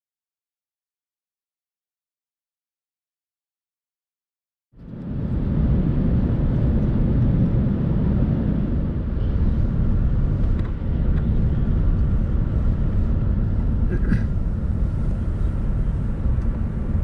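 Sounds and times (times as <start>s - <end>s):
low rumble of engines and airflow: 4.8s - 17.0s.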